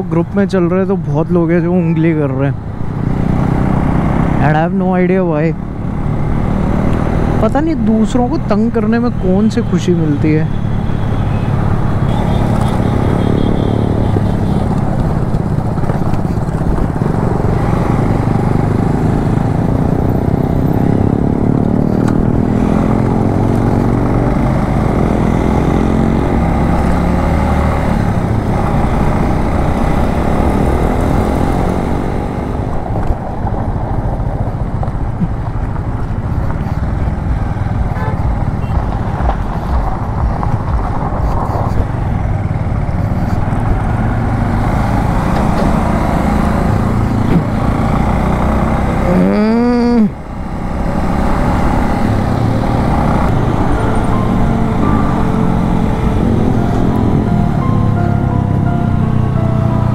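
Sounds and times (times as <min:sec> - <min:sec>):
steady rushing noise: 0:32.0 - 0:45.2
motorcycle engine running: 0:33.7 - 0:59.9.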